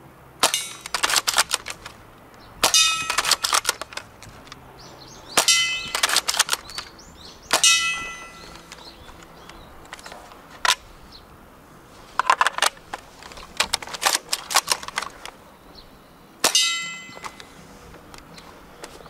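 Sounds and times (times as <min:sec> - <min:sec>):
loud metallic clang: 0:00.4 - 0:01.1, 0:02.6 - 0:04.0, 0:05.3 - 0:06.3, 0:07.5 - 0:08.7, 0:16.4 - 0:17.6
rifle bolt metallic clicks: 0:00.4 - 0:04.6, 0:05.3 - 0:10.9, 0:12.2 - 0:15.4, 0:16.4 - 0:19.0
airsoft rifle shot snap: 0:07.5 - 0:08.5.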